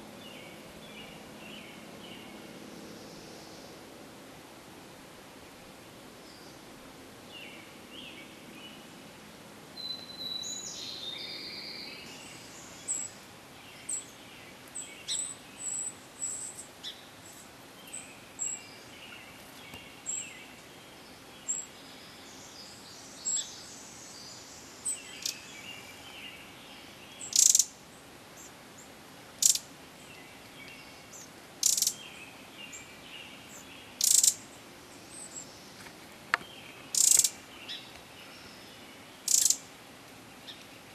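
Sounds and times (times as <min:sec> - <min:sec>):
songbird warbling song: 0:00.0 - 0:03.8, 0:07.3 - 0:09.0, 0:09.8 - 0:40.9
loud sharp bird calls: 0:27.2 - 0:27.8, 0:29.4 - 0:29.7, 0:31.1 - 0:32.0, 0:34.0 - 0:34.4, 0:36.9 - 0:37.8, 0:39.2 - 0:39.6
high thin bird chirps: 0:36.9 - 0:37.4, 0:39.3 - 0:39.6.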